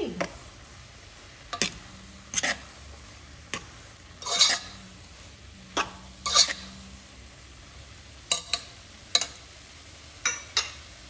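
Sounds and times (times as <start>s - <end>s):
utensil scraping a steel pot: 1.5s - 2.8s, 3.5s - 4.9s, 5.8s - 7.0s.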